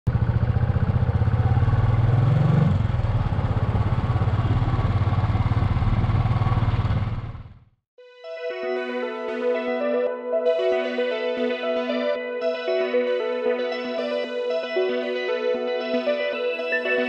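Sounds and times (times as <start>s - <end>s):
motorcycle engine running: 0.1s - 7.8s.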